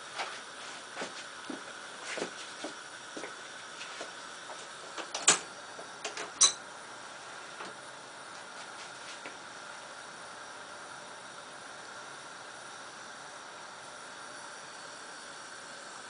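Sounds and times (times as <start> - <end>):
gas burner hissing: 0.0 - 16.0.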